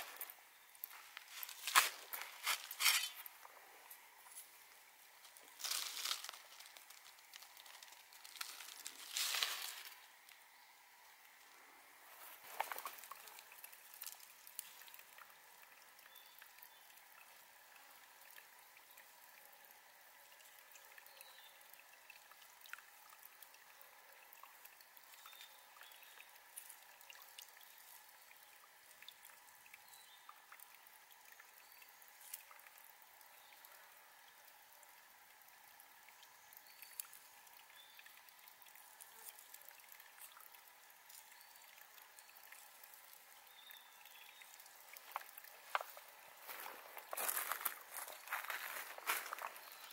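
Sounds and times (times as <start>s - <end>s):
plant stems and soil rustling: 0.0s - 10.4s, 12.0s - 15.0s, 44.7s - 49.9s
water trickling: 0.0s - 49.9s.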